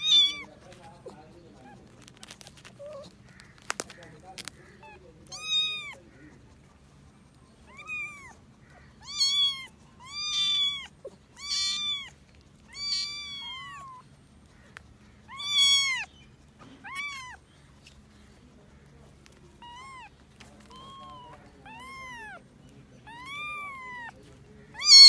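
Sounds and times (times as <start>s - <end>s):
kitten mewing: 0.0s - 6.0s, 7.6s - 14.1s, 15.2s - 16.1s, 16.7s - 17.5s, 19.5s - 25.0s.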